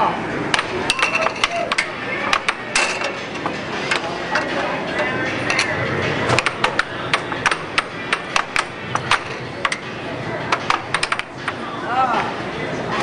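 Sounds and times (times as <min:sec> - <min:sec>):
air hockey puck clacking: 0:00.5 - 0:04.6, 0:06.3 - 0:11.6.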